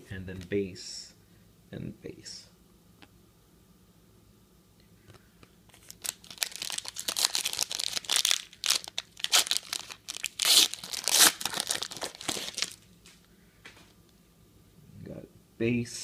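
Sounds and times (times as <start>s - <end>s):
foil crinkling: 5.7s - 12.8s
foil wrapper tearing: 5.7s - 12.8s.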